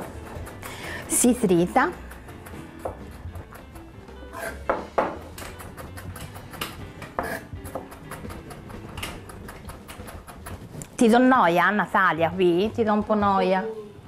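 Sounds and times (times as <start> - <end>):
knife chopping on cutting board: 0.0 - 10.8.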